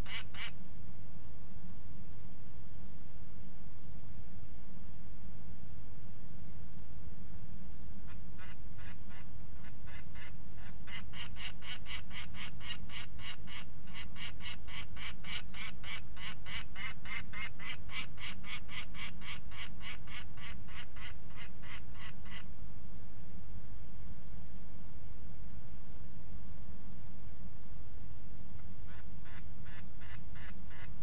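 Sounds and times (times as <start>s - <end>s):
falcon calling harsh notes: 0.0s - 0.5s, 28.9s - 30.9s.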